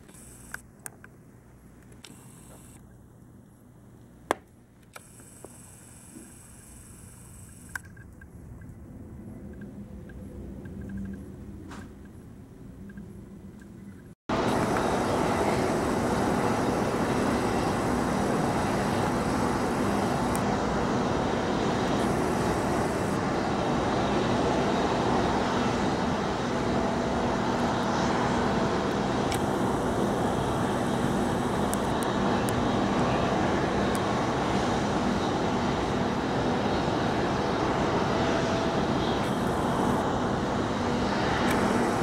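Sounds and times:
jet engine rush: 0:14.3 - 0:42.0.

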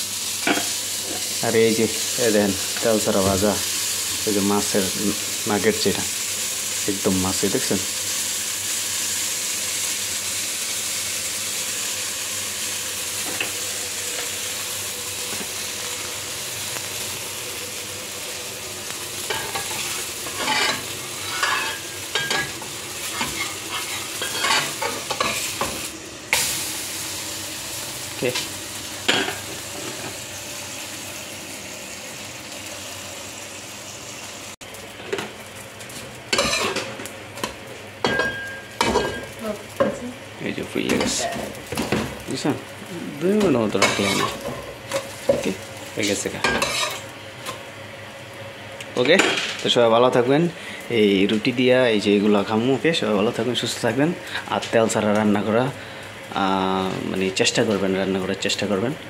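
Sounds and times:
roti sizzling in a wok: 0:00.0 - 0:59.0
metal spatula scraping pan: 0:46.5 - 0:47.0.

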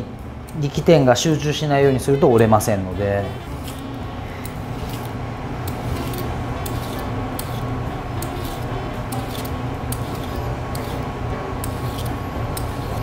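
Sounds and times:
steady low hum: 0:00.0 - 0:13.0
vegetable peeler scraping asparagus: 0:03.2 - 0:13.0.

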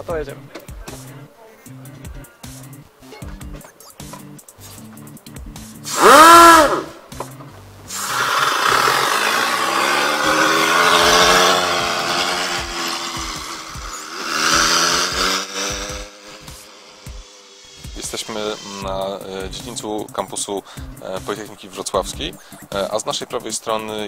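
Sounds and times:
gas valve hiss: 0:05.8 - 0:07.0, 0:07.9 - 0:19.2
pneumatic motor hissing and whining: 0:05.8 - 0:07.0, 0:07.9 - 0:19.0.

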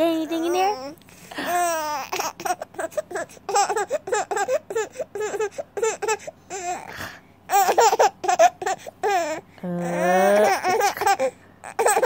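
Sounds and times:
baby laughing: 0:01.4 - 0:06.9, 0:07.5 - 0:09.4, 0:10.4 - 0:12.0.

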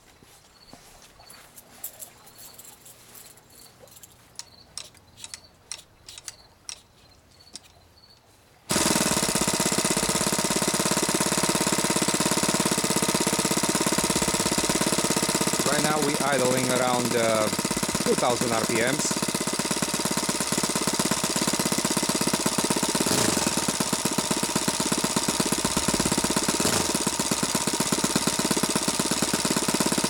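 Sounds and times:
model engine idling: 0:08.7 - 0:30.0
propeller flipping clicks: 0:14.0 - 0:29.9.

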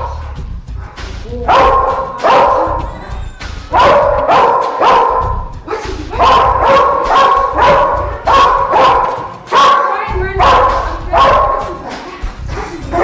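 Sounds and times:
dog barking: 0:01.5 - 0:02.9, 0:03.7 - 0:12.0.

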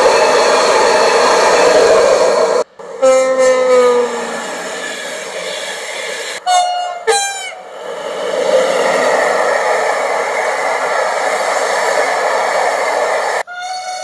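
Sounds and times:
passenger train passing on rails: 0:00.0 - 0:14.0.

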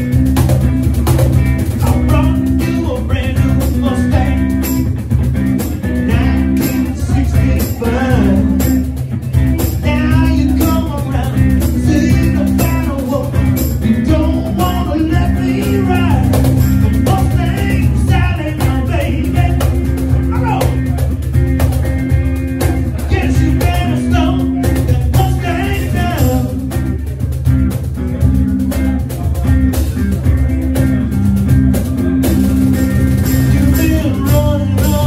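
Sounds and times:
archtop guitar: 0:00.0 - 0:35.0
cajon beat: 0:00.0 - 0:35.0
man singing into a microphone: 0:01.8 - 0:04.8, 0:05.9 - 0:09.0, 0:09.8 - 0:20.8, 0:23.0 - 0:26.8, 0:33.5 - 0:35.0.

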